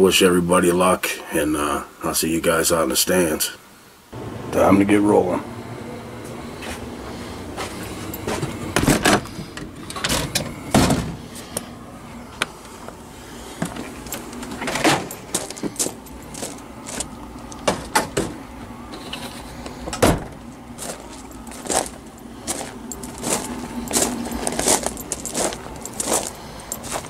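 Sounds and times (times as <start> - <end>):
camper door opening and shutting: 8.0 - 11.3, 13.6 - 16.1, 16.9 - 20.8.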